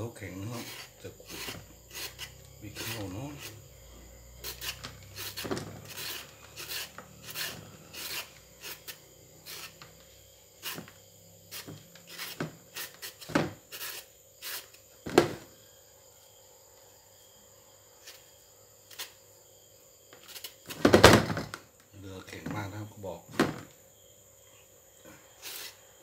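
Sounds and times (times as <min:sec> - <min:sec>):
peeler scraping mango: 0:00.3 - 0:03.7, 0:04.4 - 0:09.9, 0:10.6 - 0:14.8, 0:25.4 - 0:25.8.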